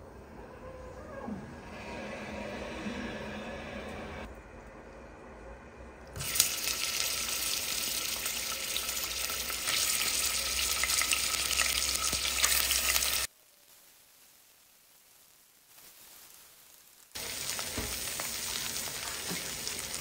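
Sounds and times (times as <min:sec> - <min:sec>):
food frying in hot oil: 0:06.2 - 0:20.0.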